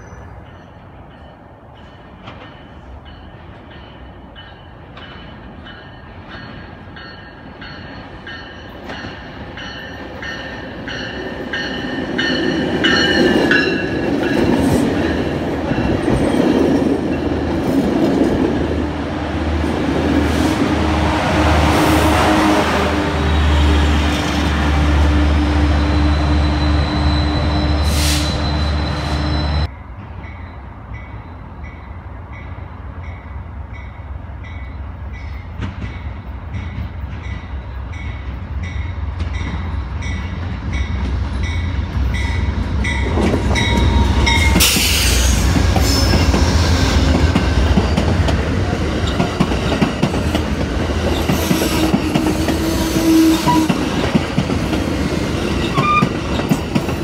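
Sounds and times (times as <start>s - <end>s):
train bell ringing: 0.0s - 16.5s, 25.6s - 46.2s
diesel locomotive engine: 0.0s - 57.0s
train cars rumbling past: 0.0s - 57.0s.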